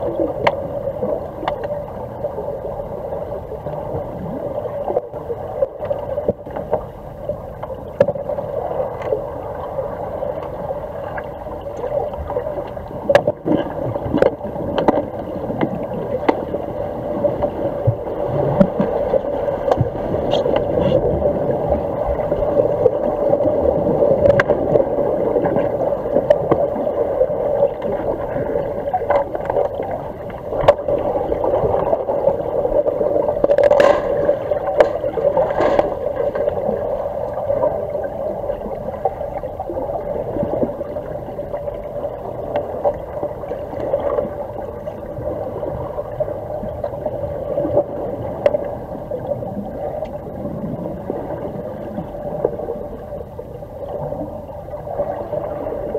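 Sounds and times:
steady underwater hum: 0.0 - 55.9
underwater bubbling: 0.0 - 55.9
underwater clicks and knocks: 0.2 - 2.0, 7.6 - 8.3, 11.2 - 16.6, 17.4 - 21.2, 24.2 - 24.9, 28.8 - 31.9, 33.3 - 37.4.

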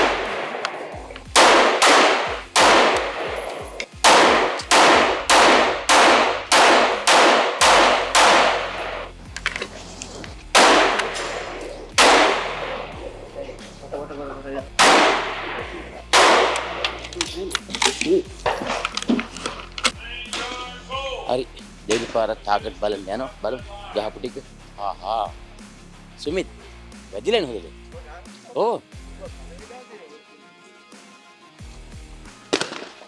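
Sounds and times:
rifle shots with ringing echo: 0.0 - 9.1, 10.5 - 13.0, 14.8 - 17.0, 32.5 - 33.0.

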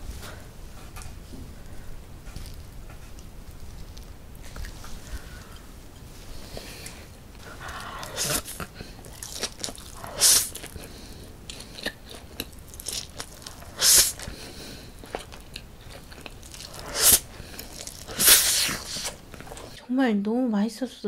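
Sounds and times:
wet chewing: 0.7 - 19.8
person slurping noodles: 6.3 - 12.4, 13.5 - 15.3, 16.6 - 19.8.

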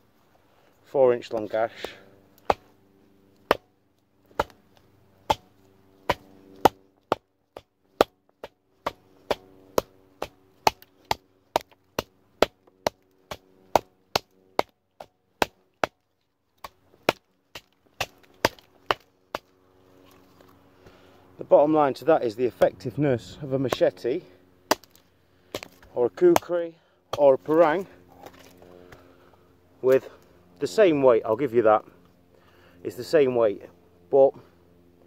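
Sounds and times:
knife chopping into wood: 1.8 - 2.7, 4.3 - 4.6, 5.2 - 16.0, 16.6 - 19.5, 24.7 - 26.5.

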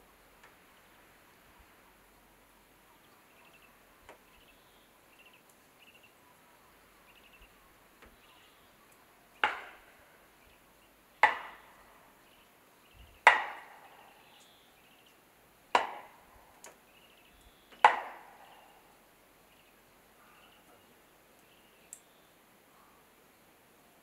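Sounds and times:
axe chopping wood: 9.4 - 9.8, 11.2 - 11.6, 13.3 - 13.7, 15.8 - 16.1, 17.8 - 18.3.

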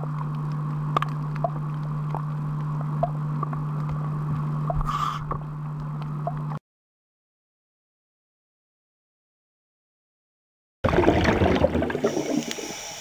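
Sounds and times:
steady low underwater hum: 0.0 - 6.6, 10.8 - 13.0.

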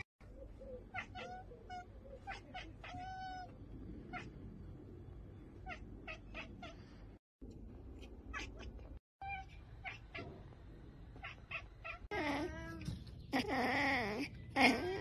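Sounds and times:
cat chattering: 0.6 - 3.5.

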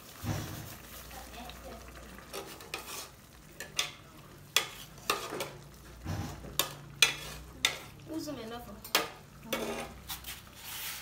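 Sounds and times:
metal ladle scraping metal pot: 2.3 - 4.0, 4.6 - 8.0, 8.9 - 11.0.

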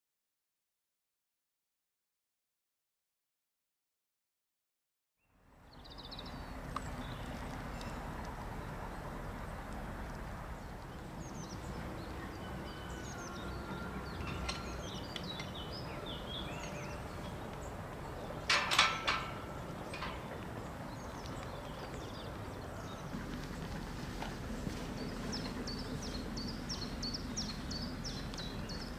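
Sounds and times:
outdoor background noise: 5.2 - 28.9
small birds chirping: 5.6 - 18.6, 19.3 - 28.9.

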